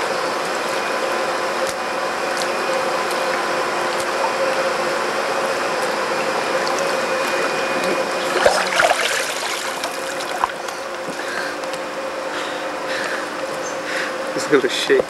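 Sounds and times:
steady mechanical hum: 0.0s - 15.0s
water splashing and streaming: 2.2s - 10.6s.

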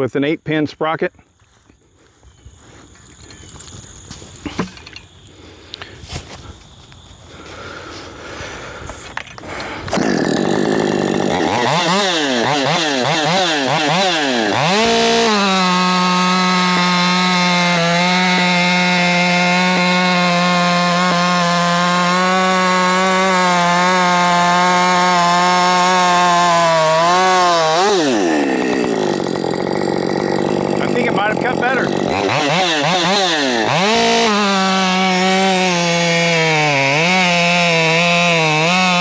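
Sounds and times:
chainsaw revving and cutting log: 9.4s - 39.0s.

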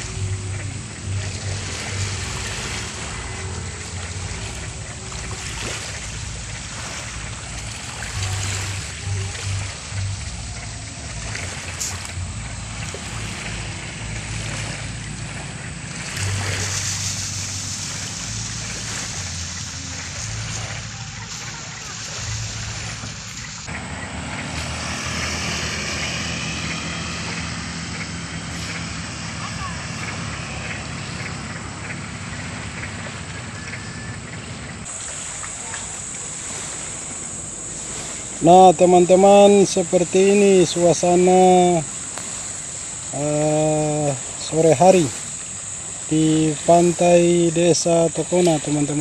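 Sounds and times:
low rumble: 0.0s - 38.4s
high insect buzz: 0.0s - 49.0s
motorbike engine drone: 0.0s - 49.0s
waves lapping on rocky shore: 0.0s - 49.0s.

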